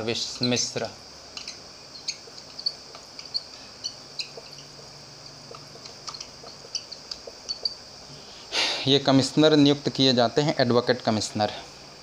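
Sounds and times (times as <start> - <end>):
marker squeaking on whiteboard: 0.2 - 7.8.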